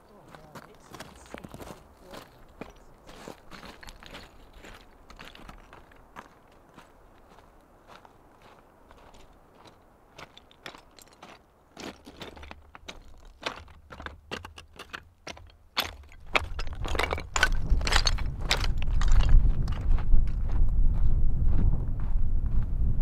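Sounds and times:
footsteps on loose shale slabs: 0.0 - 21.1
low rumble: 16.5 - 23.0.

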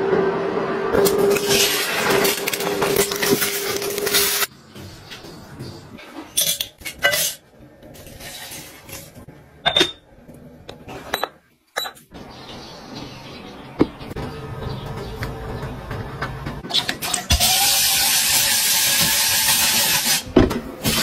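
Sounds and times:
kitchenware clinking and tapping: 4.8 - 7.4, 9.6 - 12.1.

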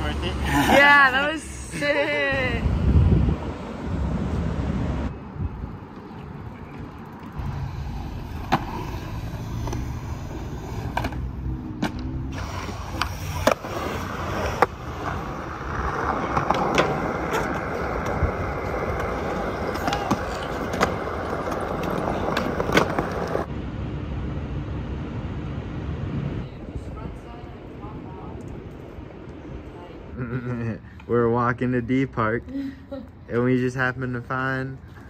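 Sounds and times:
skateboard wheels rolling on concrete: 0.0 - 32.4
skateboard clacking on ground: 6.7 - 23.5.

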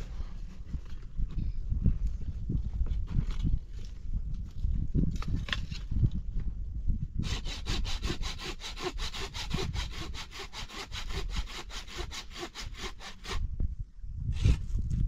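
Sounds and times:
hand saw cutting wood: 7.2 - 13.4.

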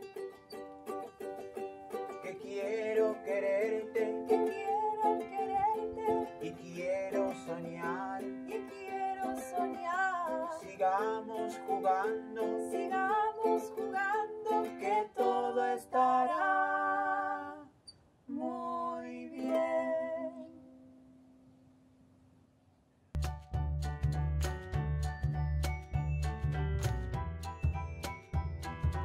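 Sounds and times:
ukulele strumming: 0.0 - 16.6, 19.3 - 20.9, 23.2 - 29.0
person singing: 2.0 - 20.6.

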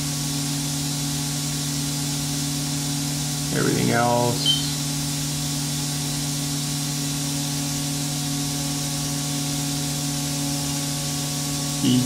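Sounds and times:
idle machine hum and hiss: 0.0 - 12.0.

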